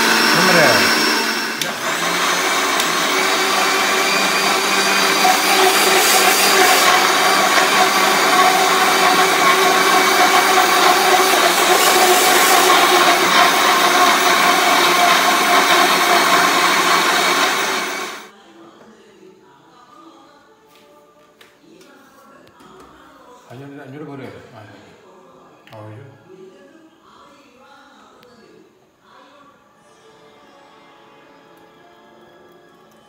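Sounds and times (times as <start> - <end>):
mixer grinder motor whine: 0.0 - 18.3.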